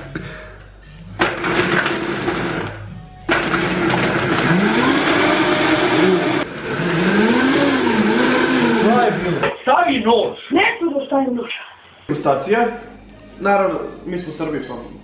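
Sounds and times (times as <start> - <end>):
blender running in pulses: 1.4 - 2.7, 3.3 - 9.5.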